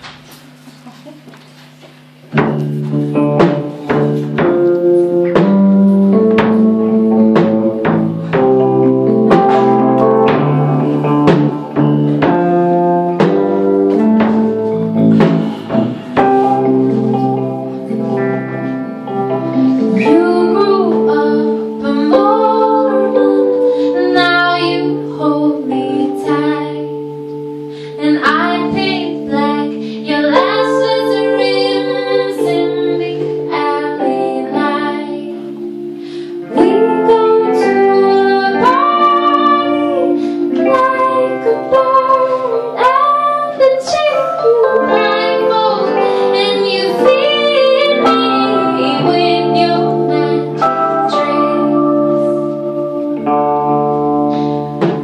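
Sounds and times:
electric guitar: 0.0s - 55.0s
women singing in harmony: 19.8s - 52.6s.

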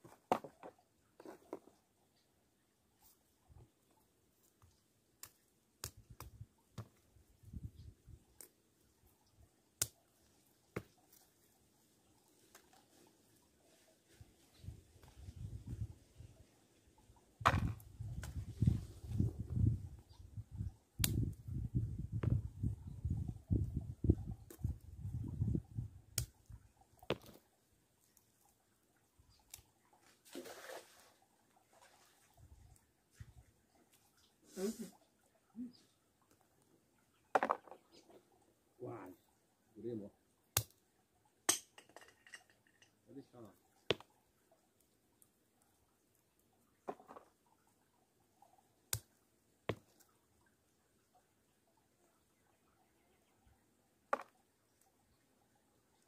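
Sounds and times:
soft handling noise: 0.0s - 1.9s.

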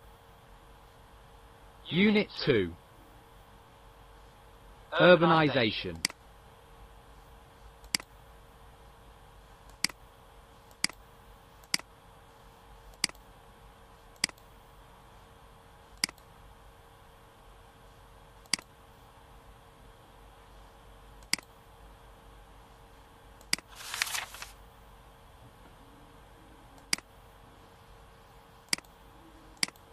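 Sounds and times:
faint steady hum: 0.0s - 29.9s
computer mouse clicks: 7.8s - 8.1s, 9.7s - 10.0s, 10.7s - 11.0s, 11.6s - 11.9s, 12.9s - 13.3s, 14.2s - 14.5s, 16.0s - 16.3s, 18.4s - 18.7s, 21.2s - 21.6s, 26.8s - 27.1s, 28.6s - 29.0s, 29.6s - 29.9s
page-turn swish effect: 23.6s - 24.6s.

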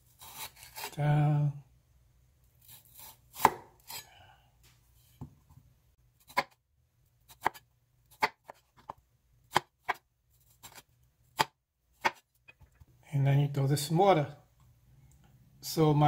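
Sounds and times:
knife cutting on wooden board: 0.2s - 1.0s, 2.6s - 4.1s, 6.2s - 6.6s, 7.3s - 12.2s.

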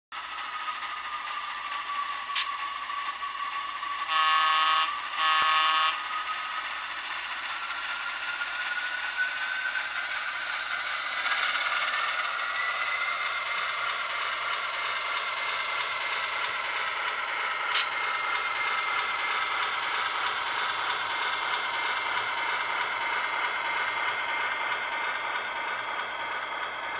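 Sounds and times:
model train running clatter: 0.2s - 26.9s
sharp click: 2.3s - 2.6s, 17.7s - 18.0s
model train horn: 4.0s - 6.1s.

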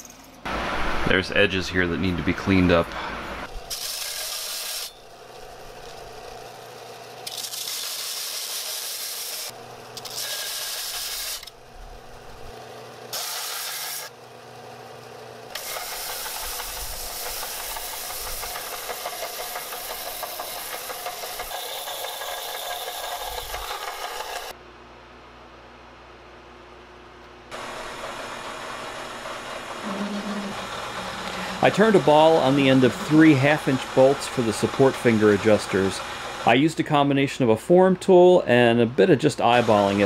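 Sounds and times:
steel grinding on belt sander: 3.2s - 6.4s, 7.2s - 12.5s, 15.6s - 24.5s, 27.6s - 36.5s
sander motor hum: 8.7s - 14.1s, 15.6s - 24.6s, 27.5s - 36.6s, 39.5s - 40.0s.

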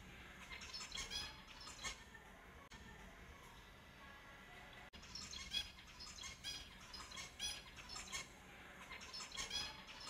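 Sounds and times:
finches chirping: 0.3s - 2.0s, 5.0s - 10.0s.

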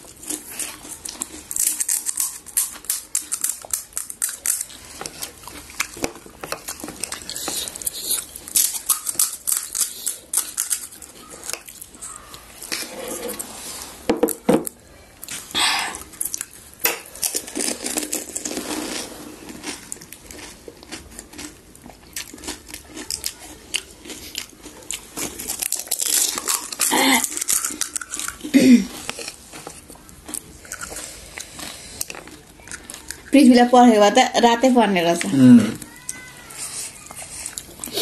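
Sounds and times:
crisp shells crunching: 0.0s - 12.8s, 16.1s - 33.4s.

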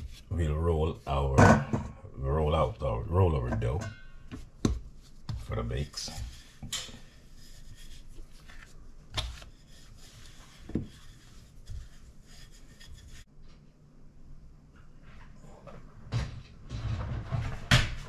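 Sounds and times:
rolling pin rubbing on dough: 0.0s - 1.2s, 4.4s - 13.3s.

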